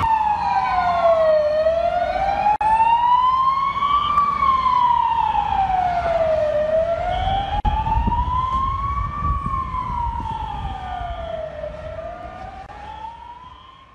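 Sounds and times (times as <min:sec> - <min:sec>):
emergency vehicle siren wailing: 0:00.0 - 0:13.9.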